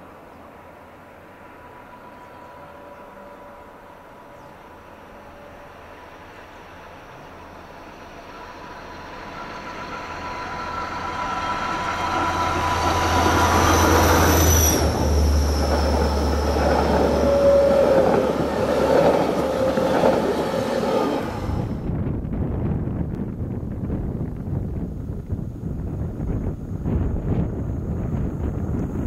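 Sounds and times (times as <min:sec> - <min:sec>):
train engine hum: 0:00.0 - 0:29.0
train wheels rumbling: 0:01.4 - 0:23.5.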